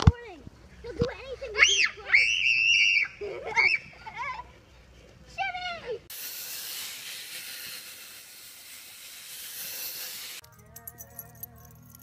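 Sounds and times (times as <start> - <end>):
steady hiss: 6.1 - 10.4.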